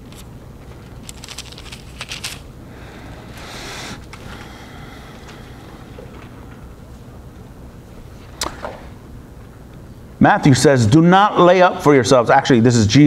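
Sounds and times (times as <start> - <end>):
pages flicking: 0.0 - 2.5
paper rustling: 0.0 - 2.5
steady low hum: 0.0 - 13.0.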